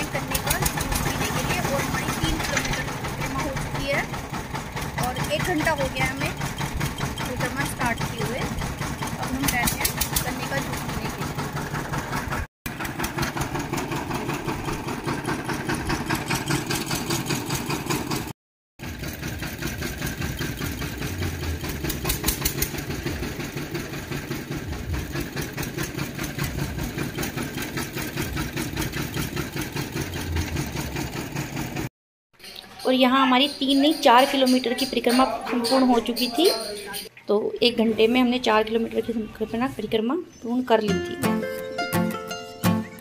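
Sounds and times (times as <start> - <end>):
machine engine running: 0.0 - 31.9.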